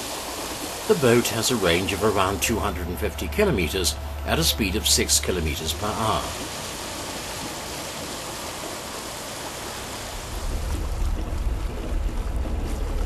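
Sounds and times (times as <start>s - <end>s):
water rushing past hull: 0.0s - 13.0s
wind rumble on microphone: 9.6s - 13.0s.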